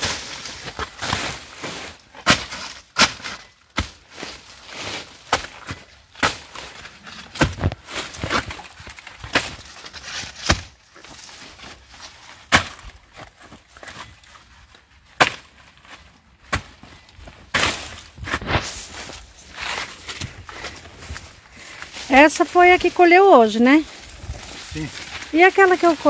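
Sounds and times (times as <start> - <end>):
dry plant material snapping: 23.9 - 26.0.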